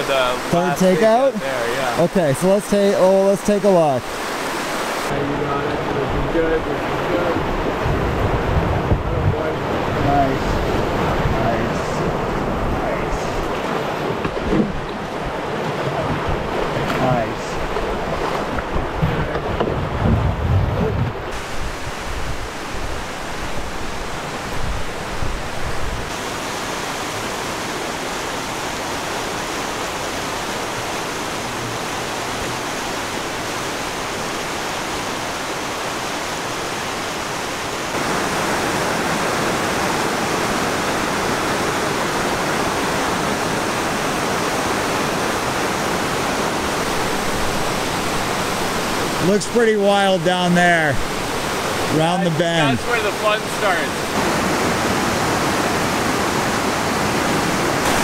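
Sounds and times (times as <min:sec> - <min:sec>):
river rapids rushing: 0:00.0 - 0:20.1, 0:21.2 - 0:58.0
wind buffeting microphone: 0:05.6 - 0:26.2.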